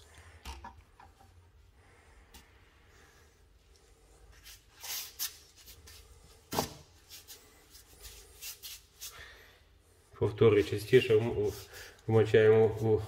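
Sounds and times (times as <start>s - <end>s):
paintbrush strokes: 7.0s - 9.2s, 10.6s - 13.0s.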